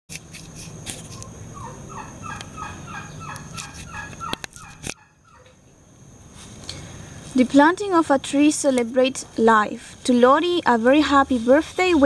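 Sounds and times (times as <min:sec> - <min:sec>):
sharp clicks: 0:03.3 - 0:05.6.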